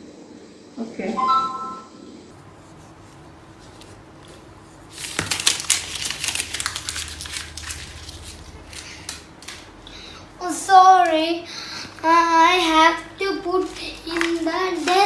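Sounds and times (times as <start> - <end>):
wrapper tearing and crinkling: 4.9 - 9.6.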